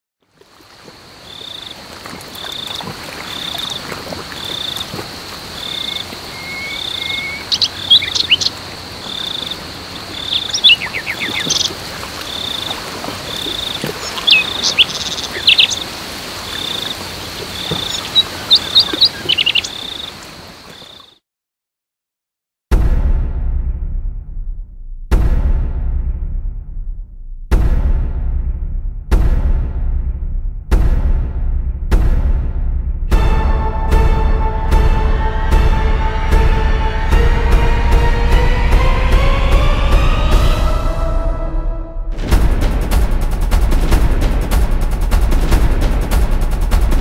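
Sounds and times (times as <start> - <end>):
high insect drone: 0.5 - 21.1
quick bird chirps: 5.6 - 12.7, 13.3 - 15.9, 16.5 - 21.2
regular high chirp: 5.7 - 8.5.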